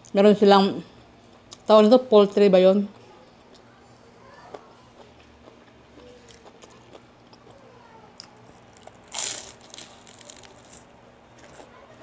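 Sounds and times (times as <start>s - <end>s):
chewing crunches: 4.5s - 7.6s, 8.2s - 11.7s
crunching bite of food: 8.2s - 11.7s.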